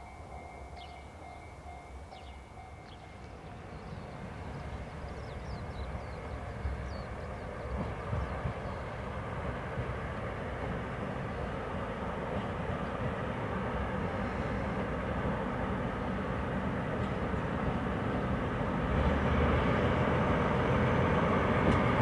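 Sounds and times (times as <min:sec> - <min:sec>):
bird chirps: 0:00.0 - 0:09.0
train running noise: 0:00.0 - 0:22.0.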